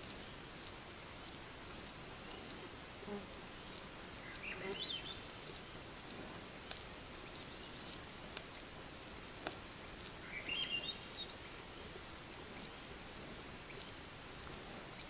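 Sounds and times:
songbird singing: 0.0s - 8.7s, 9.4s - 15.0s
background hiss: 0.0s - 15.0s
faint sharp clicks: 3.6s - 6.9s, 7.8s - 10.3s.

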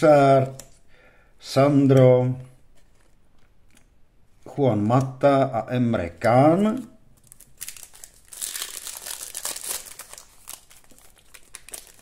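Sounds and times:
foil wrapper crinkling: 7.2s - 12.0s.

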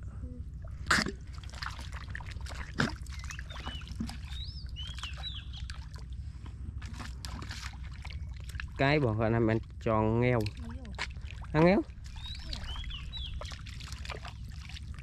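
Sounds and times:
bird chirping: 3.1s - 5.8s, 12.0s - 13.6s.

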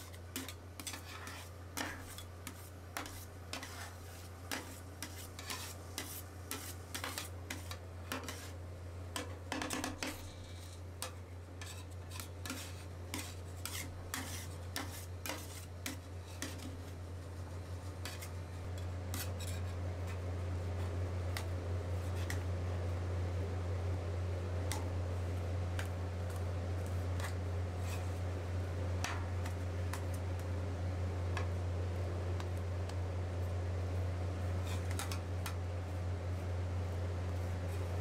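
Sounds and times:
spatulas scraping ice cream: 0.0s - 8.6s, 9.2s - 22.4s, 25.8s - 28.4s, 34.6s - 35.6s
steady low hum: 0.0s - 38.0s.

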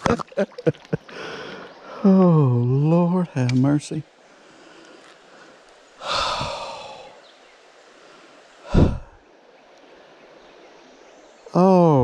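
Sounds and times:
faint steady hiss: 0.0s - 12.0s
man sighing: 6.0s - 7.1s, 8.7s - 9.2s
puff of breath: 8.7s - 9.2s.

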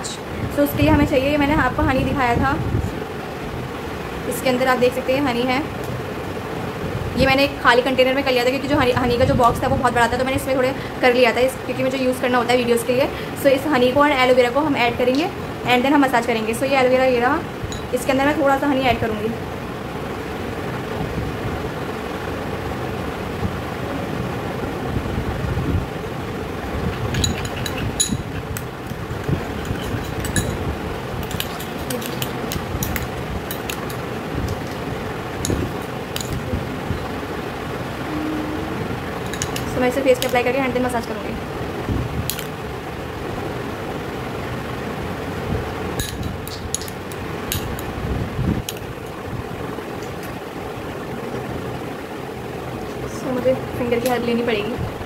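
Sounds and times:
steady background hum: 0.0s - 55.0s
metal spoon clinking glass bowl: 27.1s - 28.3s, 29.6s - 30.6s, 31.2s - 34.0s, 36.2s - 36.4s, 39.3s - 40.4s.

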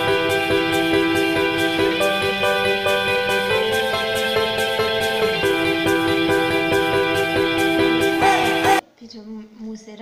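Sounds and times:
instrumental background music: 0.0s - 8.8s
light steady beat: 0.0s - 8.8s.

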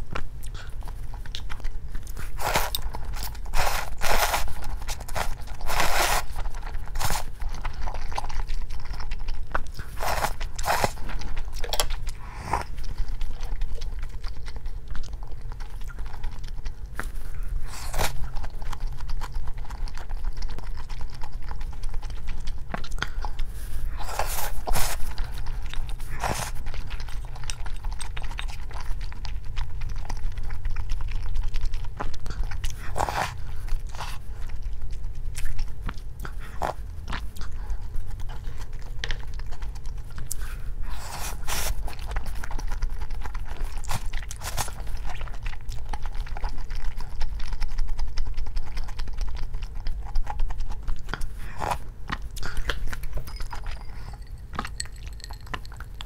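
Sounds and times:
chewing and biting food: 0.0s - 56.0s
low hum: 52.9s - 56.0s.

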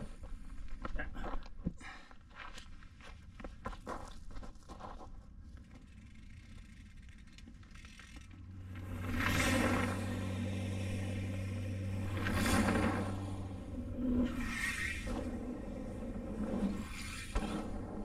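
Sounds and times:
bike tyres rolling on dirt: 0.0s - 18.0s
steady low hum: 5.5s - 18.0s.

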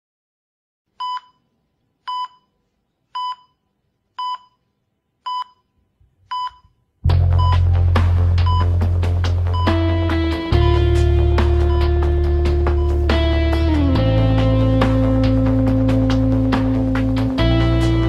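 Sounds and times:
loud music with heavy bass: 7.1s - 18.0s
short electronic beeps: 7.4s - 7.6s, 8.5s - 8.7s.

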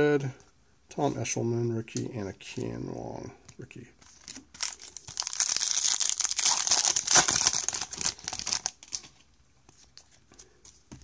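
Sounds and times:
foil wrapper crinkling and tearing: 4.1s - 9.1s.

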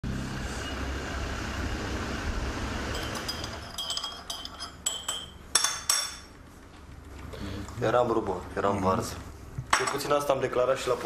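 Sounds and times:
glassware clinking: 2.9s - 6.3s, 9.7s - 10.2s.

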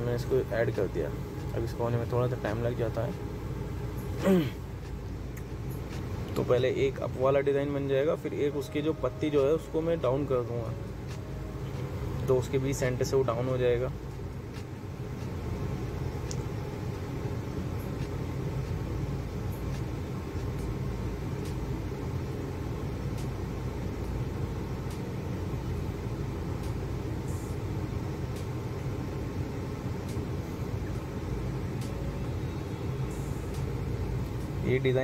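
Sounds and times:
low background hum: 0.0s - 35.0s.

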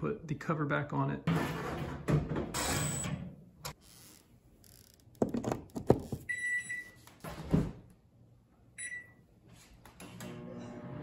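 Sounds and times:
microwave keypad beeping: 8.8s - 9.2s.

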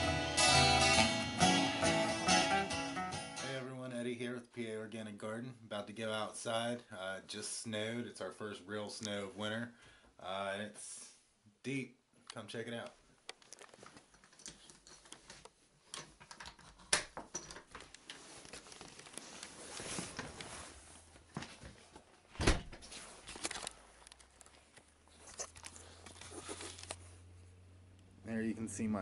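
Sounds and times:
rustling from handling: 17.8s - 22.1s.

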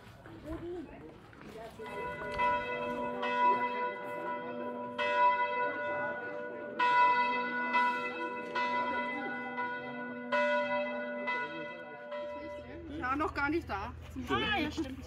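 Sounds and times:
church bells ringing: 1.7s - 13.7s.

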